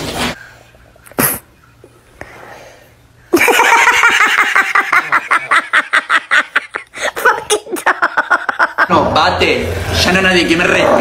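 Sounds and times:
person laughing hard: 0:03.3 - 0:08.9.

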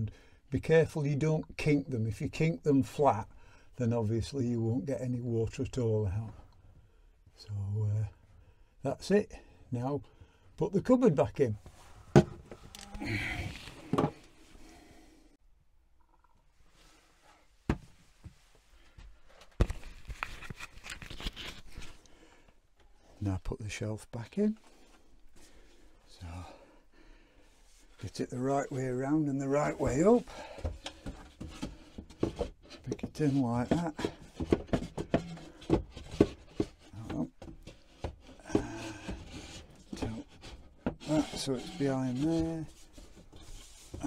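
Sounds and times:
knocks clicks and scraping: 0:29.8 - 0:44.0.

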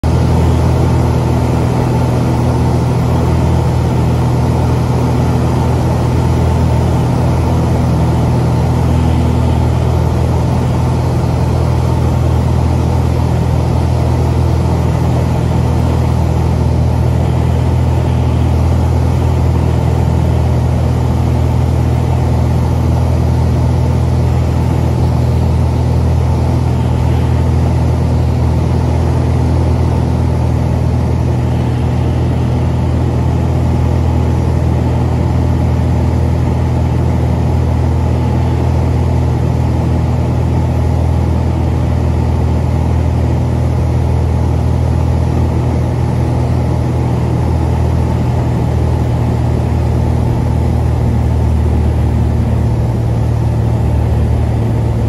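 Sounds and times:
airplane engine and propeller: 0:00.0 - 0:55.0.

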